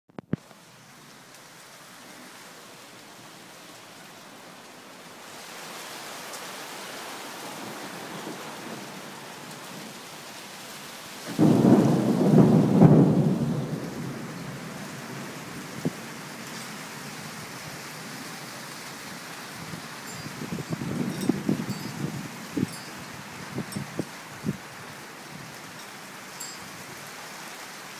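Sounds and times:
rain hiss: 0:00.2 - 0:27.9
thunder clap rumbling: 0:11.3 - 0:16.2.

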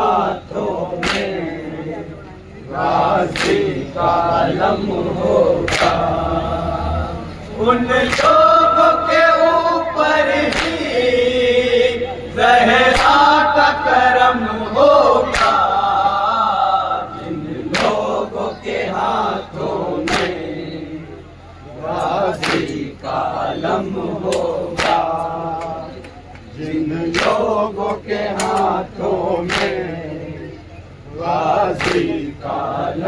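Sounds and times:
men chanting in unison: 0:00.0 - 0:33.0
chest-beating slaps: 0:01.0 - 0:01.5, 0:03.3 - 0:03.8, 0:05.7 - 0:06.1, 0:08.0 - 0:08.4, 0:10.4 - 0:10.9, 0:15.3 - 0:15.6, 0:17.7 - 0:18.1, 0:20.0 - 0:20.5, 0:22.4 - 0:22.8, 0:24.3 - 0:26.2, 0:27.1 - 0:27.5, 0:28.4 - 0:28.7, 0:29.4 - 0:29.8, 0:31.8 - 0:32.2.

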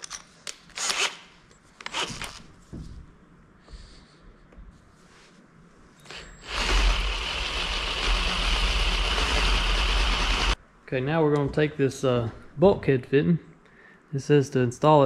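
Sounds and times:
cordless drill boring through metal: 0:06.1 - 0:10.6.

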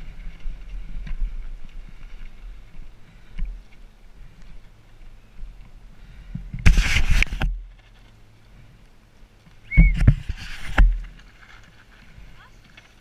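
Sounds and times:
rubbing on camera microphone: 0:06.6 - 0:07.5, 0:09.9 - 0:12.0
short squeak: 0:09.7 - 0:10.1.

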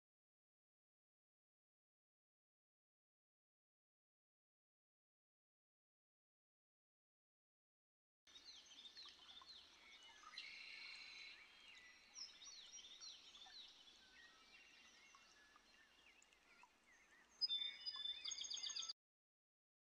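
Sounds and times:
birds chirping: 0:08.3 - 0:19.0.

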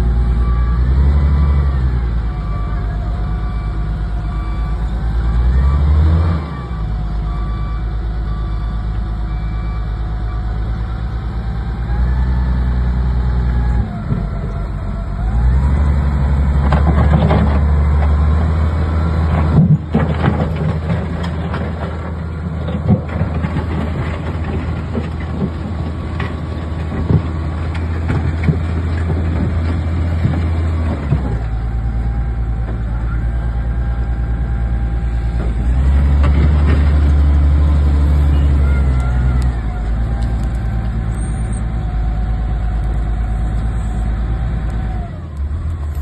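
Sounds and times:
wheel loader diesel engine: 0:00.0 - 0:46.0
knocks and clanks: 0:16.6 - 0:18.2, 0:19.3 - 0:31.6.

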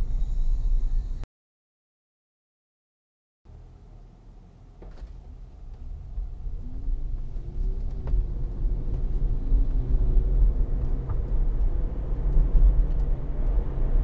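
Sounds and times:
road and tyre rumble in car: 0:03.5 - 0:14.0.

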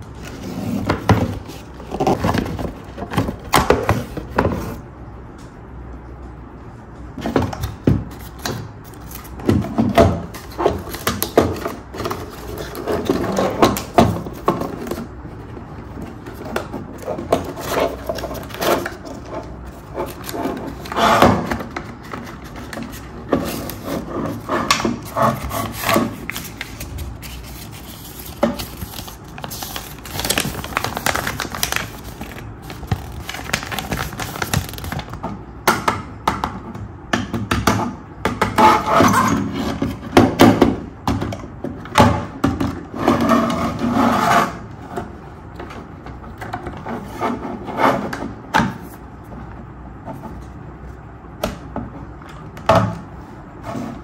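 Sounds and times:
cardboard packing rubbing: 0:14.3 - 0:35.2.

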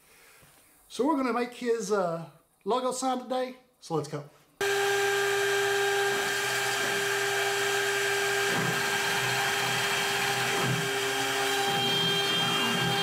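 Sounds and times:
spindle motor whine: 0:04.6 - 0:13.0
stepper motors whirring: 0:04.6 - 0:13.0.

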